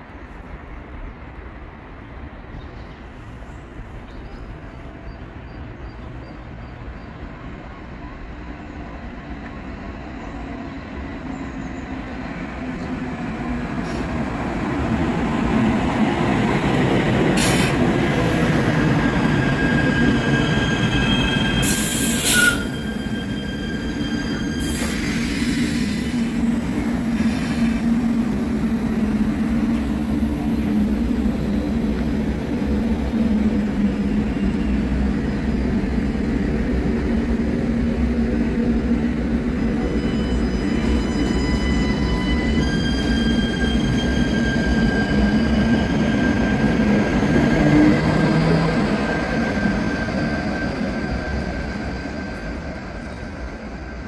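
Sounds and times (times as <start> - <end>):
light-rail train approaching: 0.0 - 54.0
train low hum: 0.0 - 54.0
train wheel squeal: 17.4 - 28.0, 33.9 - 35.4, 39.6 - 54.0.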